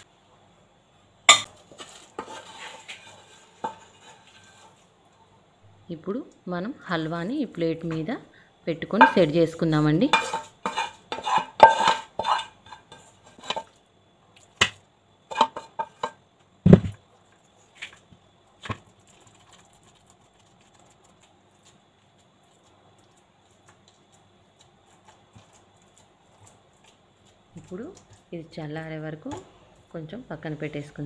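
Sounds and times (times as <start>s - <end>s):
spatula scraping: 1.3s - 5.0s, 10.0s - 13.8s, 15.3s - 16.2s, 18.6s - 28.3s.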